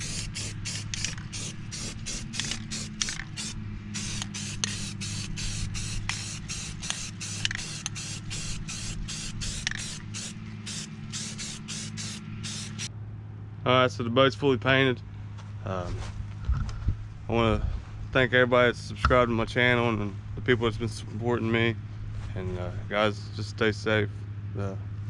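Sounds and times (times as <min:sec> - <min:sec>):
spray paint can hissing: 0:00.0 - 0:12.9
steady low hum: 0:00.0 - 0:25.0.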